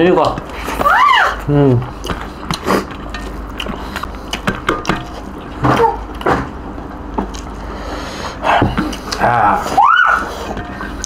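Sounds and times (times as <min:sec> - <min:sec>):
steady low hum: 0:00.0 - 0:11.0
chewing: 0:01.9 - 0:06.2, 0:08.3 - 0:09.7.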